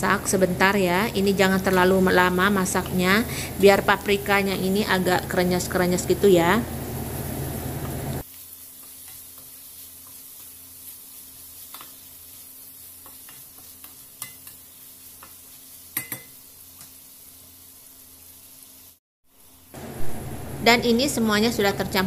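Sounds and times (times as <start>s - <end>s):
vegetables sizzling in oil: 0.0s - 22.0s
spatula scraping and tapping pan: 8.7s - 17.0s.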